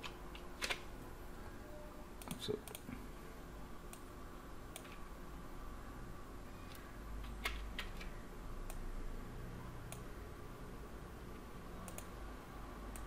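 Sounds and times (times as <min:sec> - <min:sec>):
computer mouse and keyboard clicks: 0:00.0 - 0:00.9, 0:02.2 - 0:03.0, 0:04.7 - 0:05.0, 0:06.6 - 0:08.8, 0:11.8 - 0:12.2
faint low room hum: 0:00.0 - 0:13.0.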